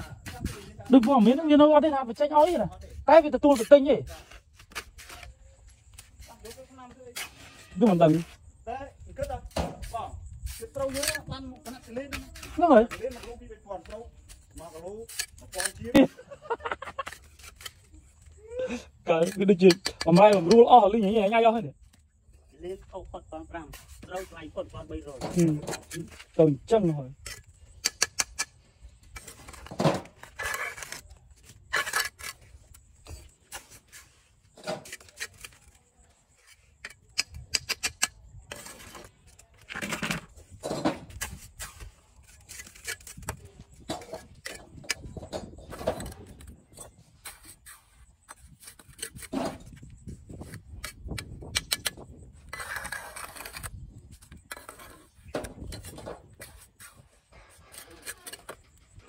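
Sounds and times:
trowel scraping mortar in metal bucket: 0:00.0 - 0:08.6, 0:09.3 - 0:21.6, 0:23.6 - 0:59.0
bricks clinking and knocking: 0:19.1 - 0:21.4, 0:24.9 - 0:33.9, 0:34.5 - 0:59.0.

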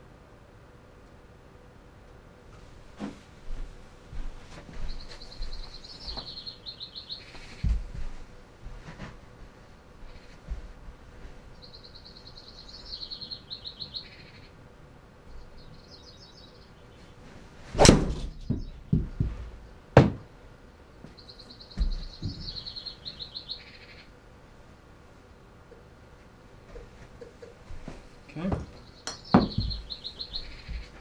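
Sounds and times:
golf ball hitting impact screen: 0:17.8 - 0:18.3
rapid chirping trill: 0:28.8 - 0:31.0
sharp knock: 0:29.1 - 0:29.8.

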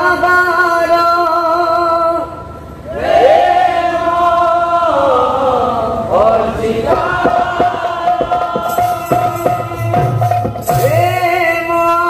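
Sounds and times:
men singing devotional song: 0:04.0 - 0:12.0
percussion strokes: 0:06.8 - 0:11.6.

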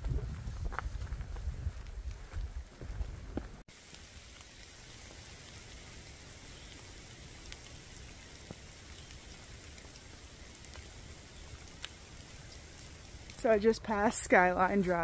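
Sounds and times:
rain hiss: 0:03.6 - 0:15.0
raindrop ticks: 0:03.7 - 0:15.0.

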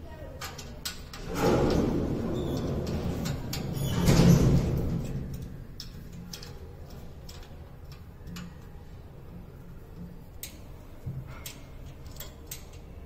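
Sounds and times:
light clicks of screwing: 0:05.4 - 0:08.8, 0:09.9 - 0:13.0.

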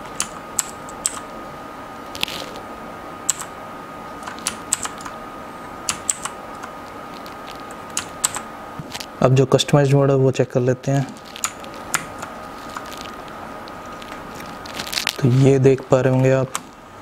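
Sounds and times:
mechanical keyboard keys clicking: 0:04.2 - 0:05.1, 0:05.9 - 0:06.7, 0:07.9 - 0:08.4.

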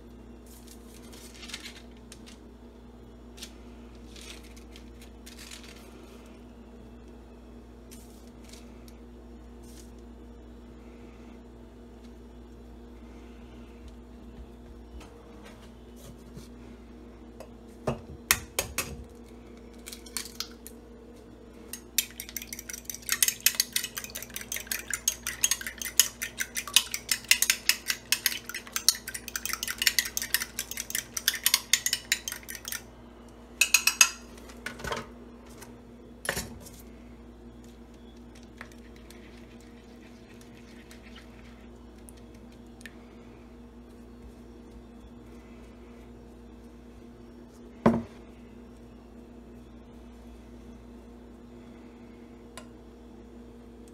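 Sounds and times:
steady low hum: 0:00.0 - 0:53.9
fork clinking on glass: 0:33.6 - 0:34.2.

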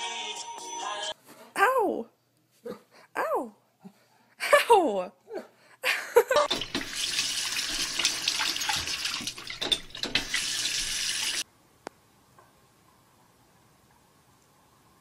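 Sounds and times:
faucet running into a sink: 0:06.5 - 0:11.4.

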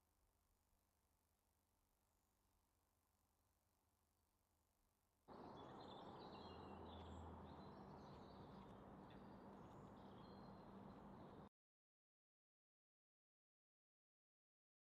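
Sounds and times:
small birds chirping: 0:05.3 - 0:11.5.

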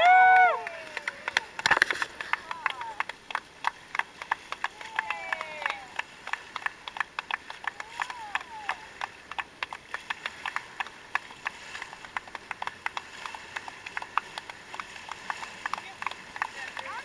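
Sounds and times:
dolphin clicks: 0:01.0 - 0:03.4.

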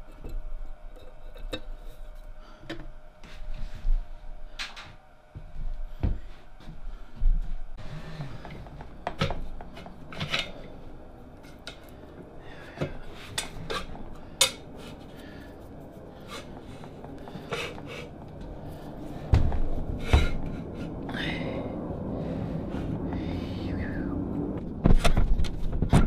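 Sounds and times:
metal clinks and scrapes: 0:09.7 - 0:10.8
heavy thuds: 0:19.1 - 0:20.7.

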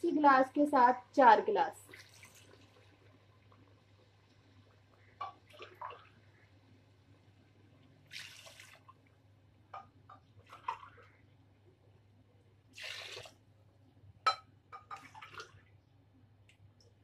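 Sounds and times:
faint steady hum: 0:00.0 - 0:17.0
water pouring into a pot: 0:01.7 - 0:09.4, 0:10.3 - 0:11.3, 0:12.7 - 0:13.5, 0:14.8 - 0:15.7.

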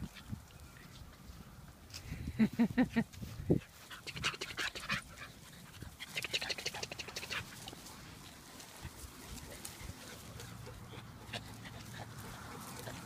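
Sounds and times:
dog panting: 0:03.6 - 0:13.0.

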